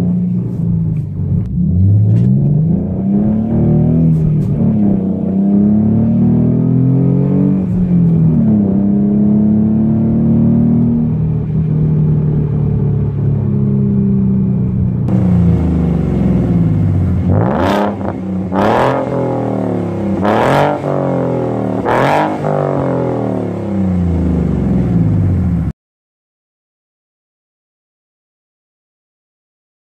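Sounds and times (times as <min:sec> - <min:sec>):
sports car engine revving: 0:00.0 - 0:25.7.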